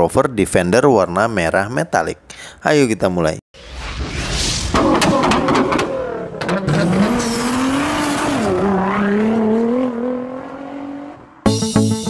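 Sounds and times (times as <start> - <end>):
car engine revving: 4.8 - 11.5.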